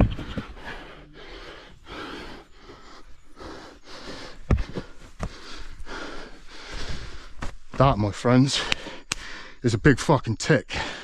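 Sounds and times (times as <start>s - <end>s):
man breathing hard: 0.4s - 7.6s, 8.5s - 9.6s, 10.7s - 11.0s
dull knocks: 4.4s - 5.4s.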